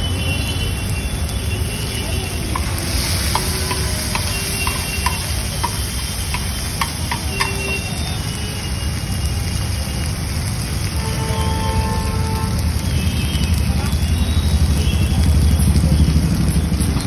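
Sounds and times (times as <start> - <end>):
traffic rumble: 0.0 - 17.0
metal spatula clinking on griddle: 2.5 - 8.0.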